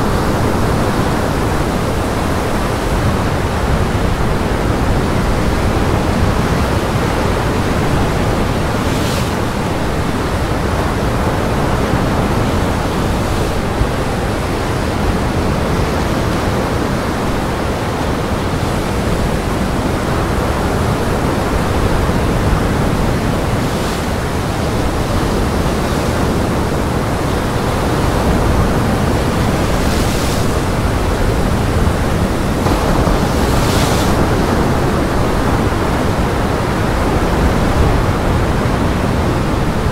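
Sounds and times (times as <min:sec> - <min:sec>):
strong wind: 0:00.0 - 0:39.9
surf breaking: 0:21.4 - 0:38.2.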